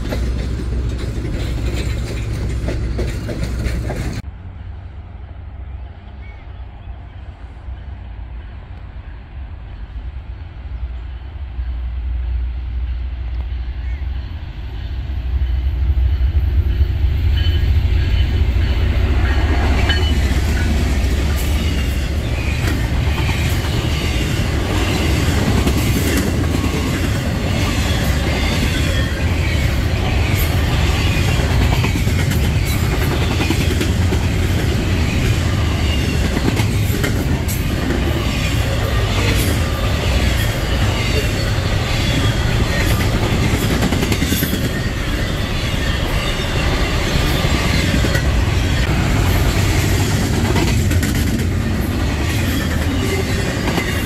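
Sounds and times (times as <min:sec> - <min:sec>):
wheels clicking over rail joints: 0:00.0 - 0:04.3
diesel locomotives passing: 0:00.0 - 0:54.0
high wheel squeals: 0:38.0 - 0:43.5, 0:44.2 - 0:48.9.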